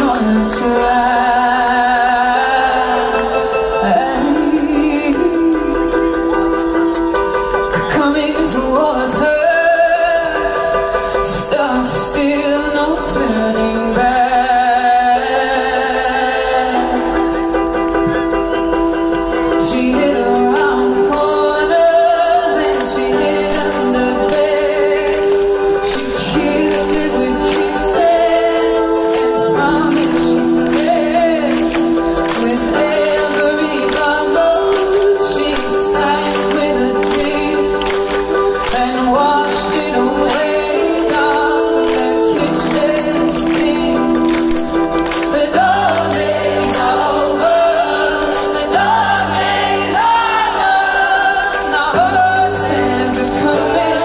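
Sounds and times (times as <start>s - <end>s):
woman singing with vibrato: 0.0s - 17.6s, 19.3s - 54.0s
live band percussion: 16.4s - 54.0s.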